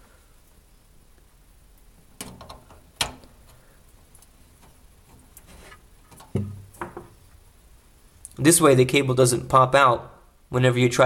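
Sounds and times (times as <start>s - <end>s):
dull thumps: 2.1s - 7.3s.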